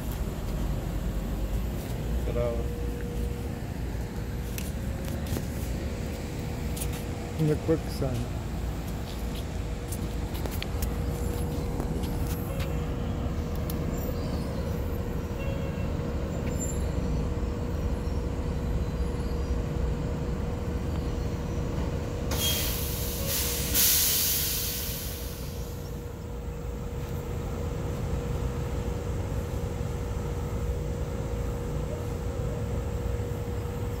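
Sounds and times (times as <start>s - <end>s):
low mechanical rumble: 0.0s - 23.7s
loud hiss: 22.3s - 25.8s.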